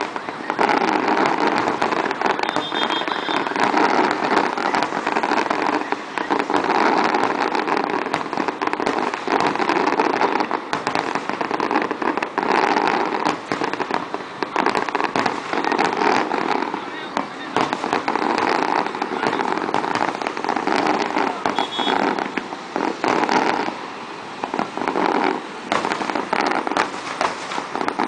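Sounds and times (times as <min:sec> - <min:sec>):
fireworks crackling: 0:00.0 - 0:28.0.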